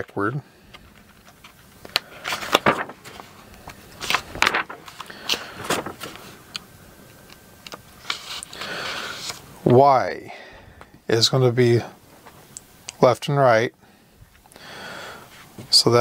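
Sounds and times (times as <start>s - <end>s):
hands handling wires and parts: 0.0s - 9.9s.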